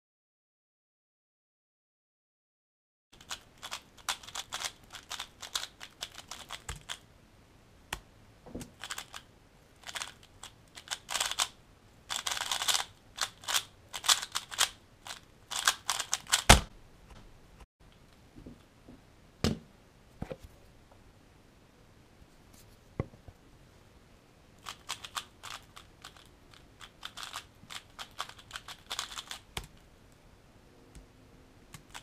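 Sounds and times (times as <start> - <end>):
plastic puzzle cube clicking: 3.2 - 7.0, 8.6 - 9.2, 9.8 - 11.5, 12.1 - 16.6, 24.6 - 29.8.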